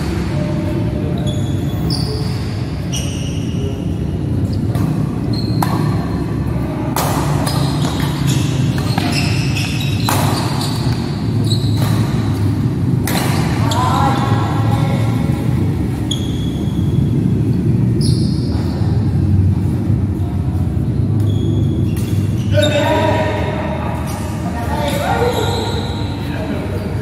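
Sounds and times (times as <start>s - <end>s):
shoes squeaking on court: 1.0s - 14.4s, 15.0s - 17.2s, 17.9s - 19.8s, 20.6s - 23.0s, 23.9s - 26.4s
rackets hitting shuttlecock: 4.6s - 6.2s, 6.9s - 13.8s.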